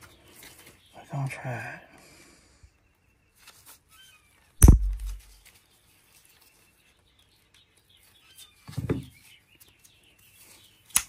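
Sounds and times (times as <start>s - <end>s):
sharp loud knock: 4.6s - 5.2s.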